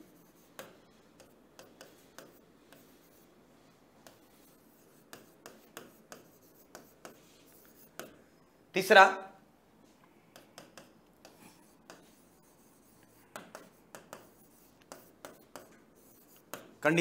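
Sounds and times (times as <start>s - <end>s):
pen scratching on paper: 0.0s - 3.3s, 4.0s - 8.2s, 10.7s - 16.7s.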